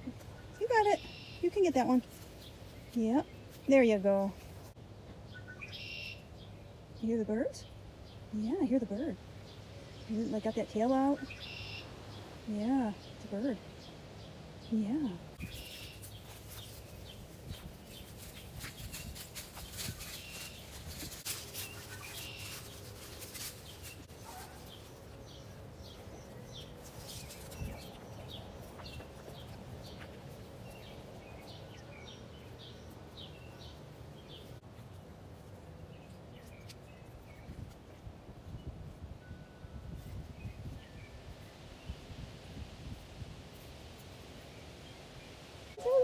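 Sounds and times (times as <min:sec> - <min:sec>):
songbird chirping: 0:00.0 - 0:42.2
rustling and clicks: 0:15.9 - 0:25.0.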